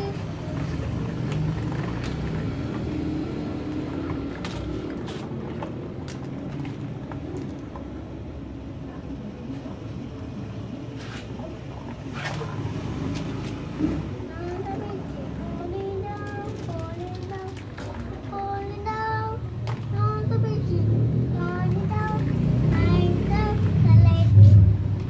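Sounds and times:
plastic toys clattering in water: 0.1 - 8.2, 15.6 - 19.0, 19.6 - 20.0.

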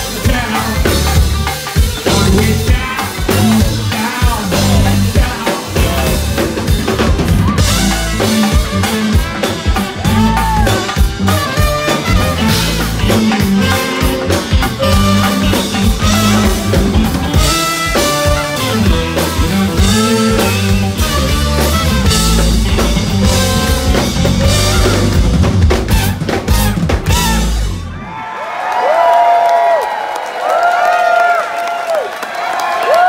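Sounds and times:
brass funk band playing: 0.0 - 28.2
crowd cheering and whooping: 7.0 - 8.3, 9.8 - 11.1, 27.7 - 33.0
trumpet: 7.4 - 28.1.

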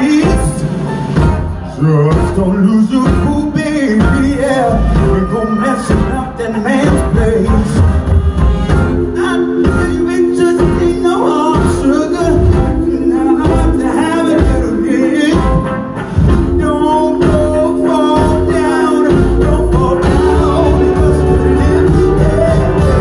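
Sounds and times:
drum beat: 0.0 - 23.0
woman singing: 4.3 - 7.2.

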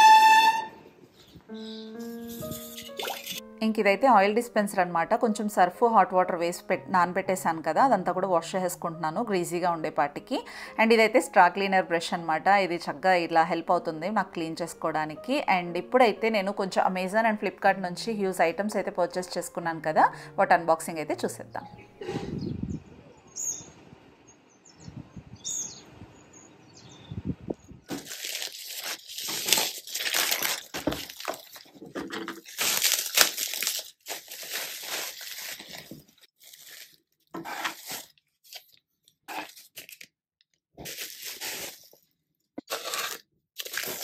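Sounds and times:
packaging tearing and crinkling: 27.9 - 40.1, 40.8 - 42.0, 42.7 - 44.0.

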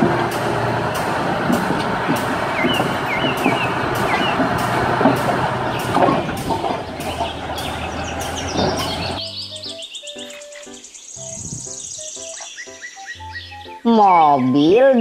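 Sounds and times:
bulldozer diesel engine running: 0.0 - 9.2
regular mechanical knock: 0.0 - 9.2
bird chirps: 2.5 - 4.5, 5.6 - 15.0.

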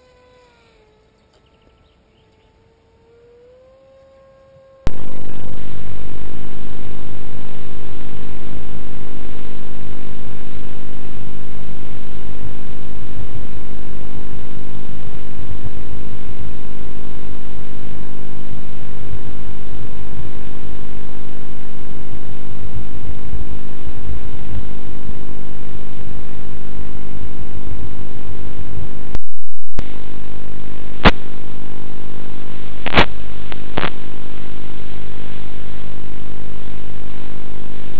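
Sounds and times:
model plane motor and propeller: 0.0 - 5.6.

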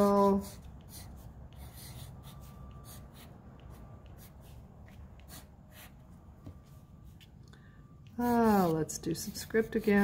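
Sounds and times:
pencil scratching on paper: 0.0 - 6.0, 8.2 - 10.0
low steady hum: 0.0 - 10.0.

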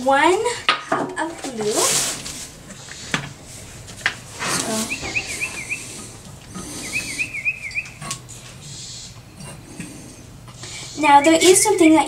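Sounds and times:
bird singing high notes: 4.8 - 5.9, 6.8 - 8.0.

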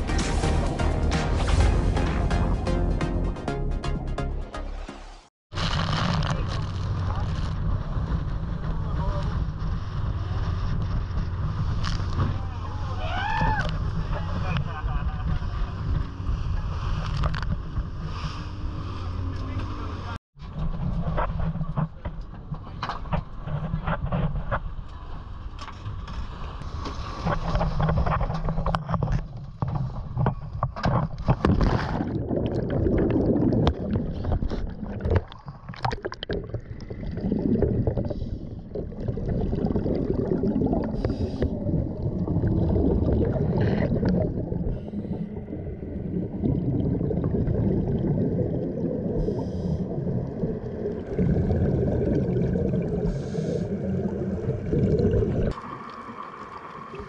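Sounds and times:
boat running over choppy water: 5.8 - 22.8
underwater bubbles rushing: 31.1 - 57.0
scuba regulator breathing: 37.4 - 38.8, 40.8 - 42.0, 44.6 - 45.7, 49.0 - 50.5, 52.9 - 54.2.

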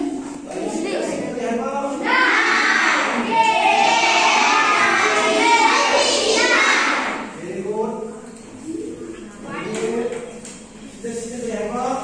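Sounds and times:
children speaking in unison: 0.0 - 7.4.

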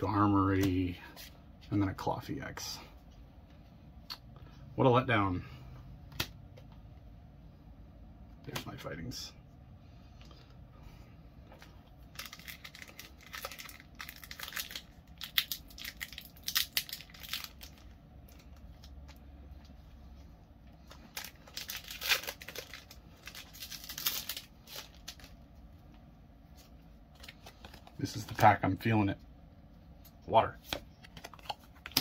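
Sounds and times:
foil wrapper tearing and crinkling: 12.1 - 18.4, 21.1 - 25.4.

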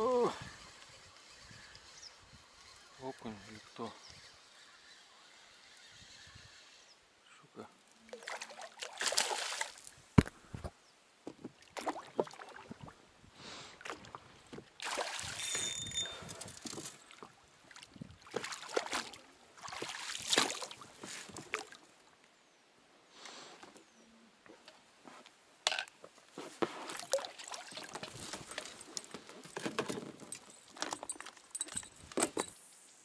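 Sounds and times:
water splashing: 8.0 - 10.0, 11.6 - 13.0, 14.8 - 15.6, 17.0 - 21.8, 26.9 - 28.6.

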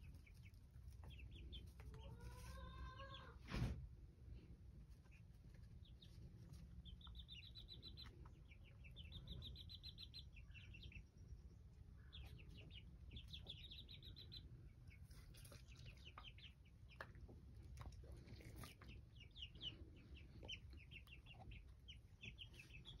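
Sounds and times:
chicks peeping: 0.0 - 23.0.

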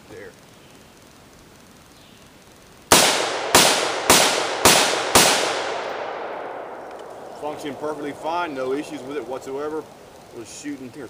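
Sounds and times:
gunshot echo: 2.9 - 9.5
rifle gunshots: 2.9 - 9.7.

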